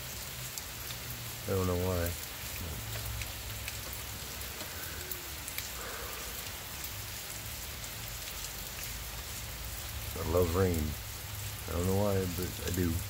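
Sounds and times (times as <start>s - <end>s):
steady rain falling: 0.0s - 13.0s
drops ticking: 2.2s - 6.5s.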